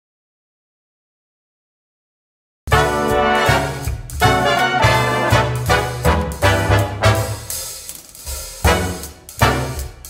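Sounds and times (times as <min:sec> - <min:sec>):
full-band music with pulsing bass: 0:02.7 - 0:10.0.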